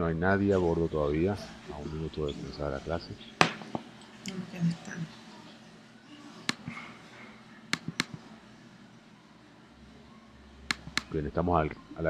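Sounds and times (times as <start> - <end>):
sharp clicks: 7.7 - 8.2, 10.7 - 11.1.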